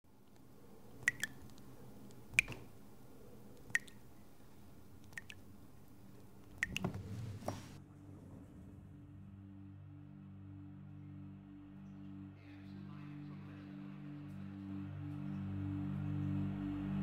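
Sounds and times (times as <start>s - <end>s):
faint low hum: 0.1s - 17.0s
water drops plinking: 1.0s - 1.6s, 2.3s - 2.8s, 3.6s - 4.1s, 5.0s - 5.5s, 6.4s - 7.0s.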